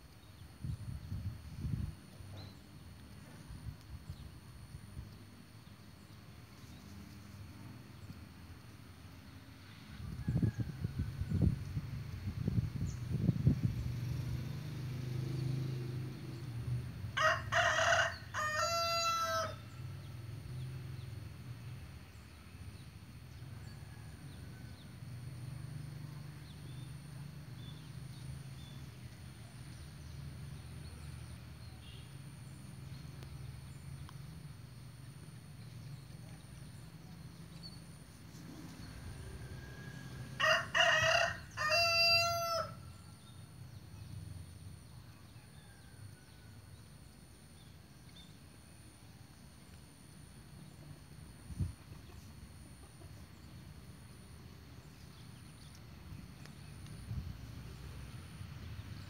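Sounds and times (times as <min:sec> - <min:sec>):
rooster crowing: 0:09.9 - 0:11.6, 0:17.2 - 0:20.0, 0:38.8 - 0:43.3.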